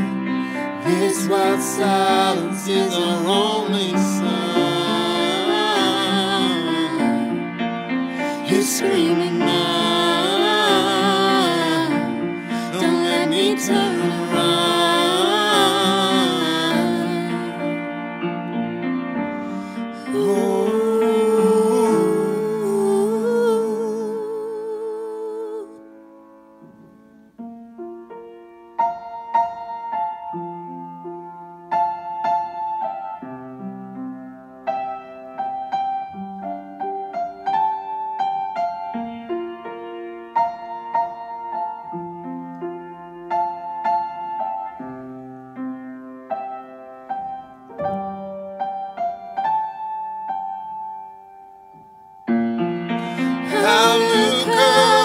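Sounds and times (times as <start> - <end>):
solo piano playing chords: 0.0 - 55.0
man singing with vibrato: 0.8 - 7.4, 8.2 - 17.6, 20.0 - 25.6, 53.0 - 55.0.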